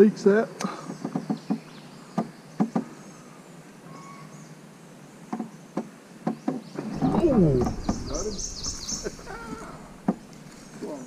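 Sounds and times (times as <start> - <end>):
swamp insects buzzing: 6.8 - 11.0.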